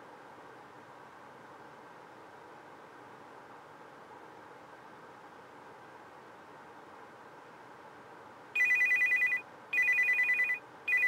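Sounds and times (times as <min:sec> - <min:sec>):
faint steady hiss: 0:00.0 - 0:11.0
phone ringing with two-tone trill: 0:08.6 - 0:11.0.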